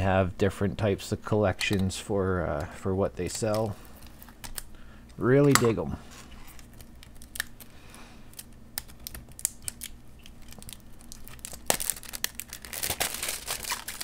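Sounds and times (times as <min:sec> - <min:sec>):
packaging crinkling and tearing: 0:03.2 - 0:04.7, 0:06.3 - 0:14.0
packaging clicks and rustles: 0:03.2 - 0:05.7, 0:06.4 - 0:14.0.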